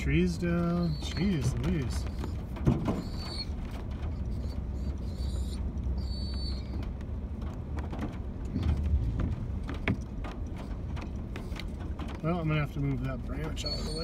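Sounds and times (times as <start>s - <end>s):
body and suspension creaks: 0.0s - 14.0s
van rumbling on dirt: 0.0s - 14.0s
high squeaks: 0.6s - 6.9s, 13.6s - 14.0s.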